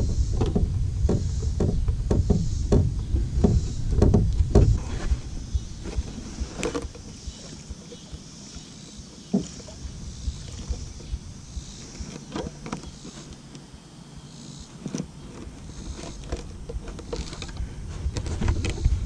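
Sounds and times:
plastic jug knocks and rubbing: 0.0 - 8.1, 9.3 - 9.8, 14.8 - 19.0.

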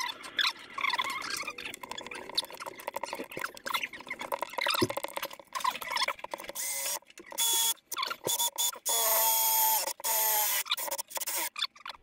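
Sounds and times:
cordless drill-driver bursts: 6.6 - 11.5.

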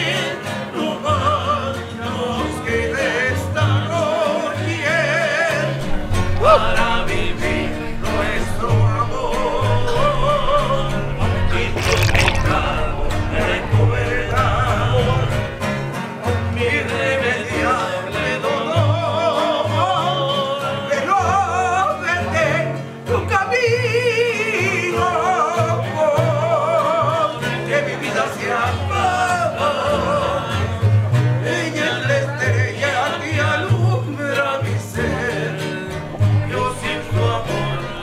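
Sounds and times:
song with held vocal: 0.0 - 22.3, 35.1 - 38.0.

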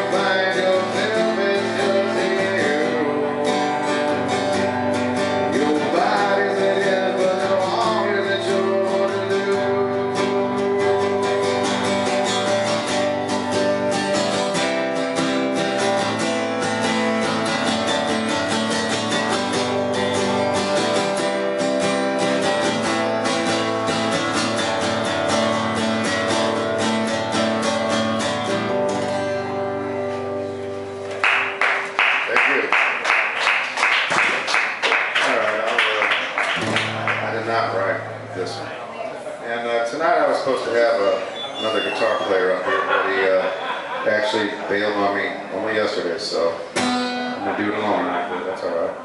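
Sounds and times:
man singing into a microphone: 0.0 - 4.3, 5.4 - 11.8
acoustic guitar strumming: 0.0 - 33.0, 36.4 - 49.0.

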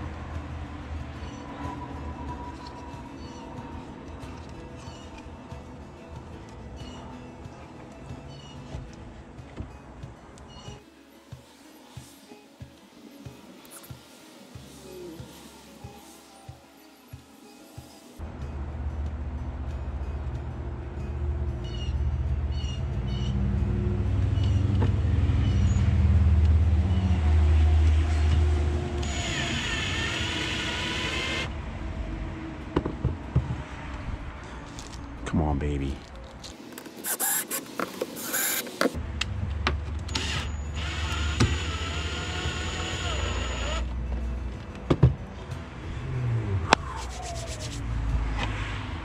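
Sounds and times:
small electric motor whirring: 37.0 - 38.8, 40.2 - 43.9.

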